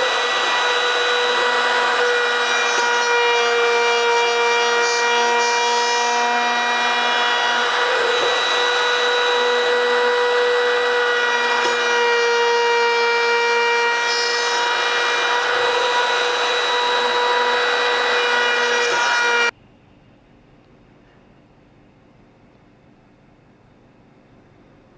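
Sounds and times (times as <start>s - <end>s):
router bit cutting wood: 0.0s - 19.5s
router whining: 0.0s - 19.5s.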